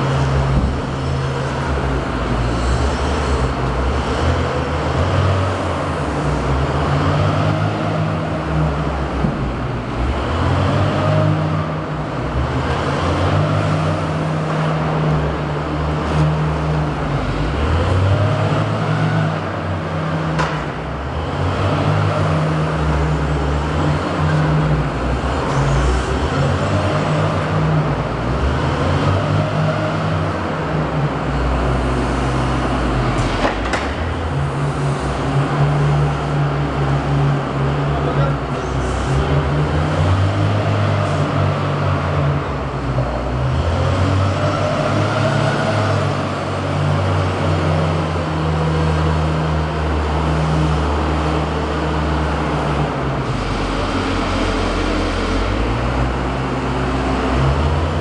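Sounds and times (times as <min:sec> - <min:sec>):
wheel loader engine under load: 0:00.0 - 0:58.0.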